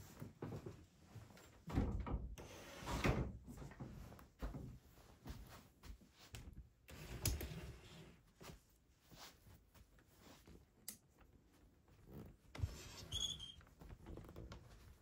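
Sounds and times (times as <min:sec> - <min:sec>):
soft footsteps on stairs: 0:03.5 - 0:06.8.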